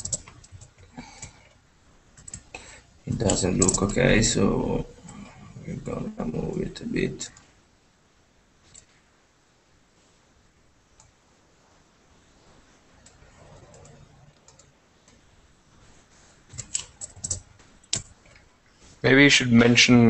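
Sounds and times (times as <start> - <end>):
computer mouse and keyboard clicks: 0.0 - 1.6, 2.2 - 2.5, 8.6 - 9.0, 13.0 - 15.2, 16.5 - 18.5.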